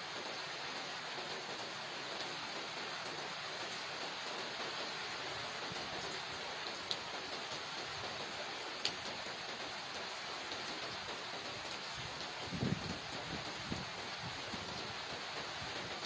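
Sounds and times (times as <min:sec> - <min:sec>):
rain on wet paving and leaves: 0:00.0 - 0:16.0
water drip ticks: 0:06.8 - 0:07.6.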